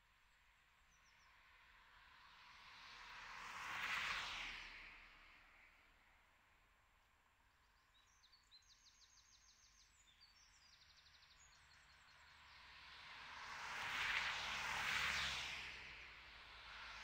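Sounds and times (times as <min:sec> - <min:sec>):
vehicle passing on road: 0:02.1 - 0:05.6, 0:12.2 - 0:17.0.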